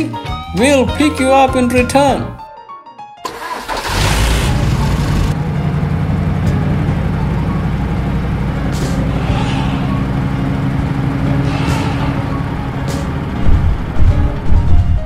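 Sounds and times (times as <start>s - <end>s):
backhoe loader engine running: 3.3s - 15.0s
short hisses: 8.8s - 10.2s, 11.4s - 12.3s.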